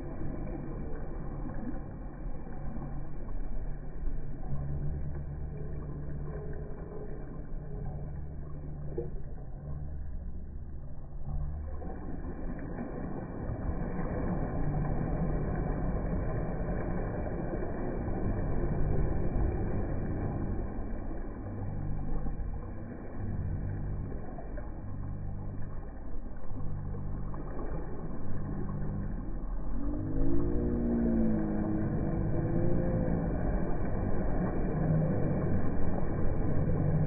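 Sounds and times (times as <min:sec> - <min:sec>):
water rushing: 0:00.0 - 0:37.0
jet ski engine running: 0:26.6 - 0:37.0.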